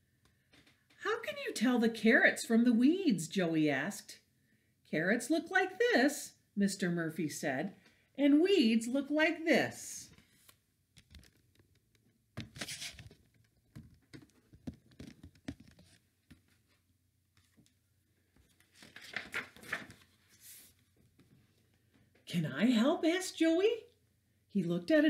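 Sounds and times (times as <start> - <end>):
page turning: 10.1 - 16.8, 18.4 - 21.3
paper pages rustling: 10.2 - 11.8, 12.4 - 16.8, 17.4 - 21.5.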